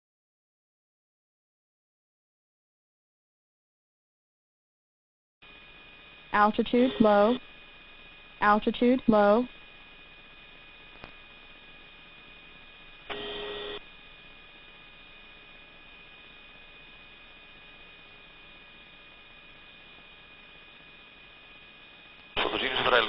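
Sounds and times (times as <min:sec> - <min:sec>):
intercom electrical hum and hiss: 0:05.4 - 0:23.0
electronic tone: 0:13.1 - 0:13.8.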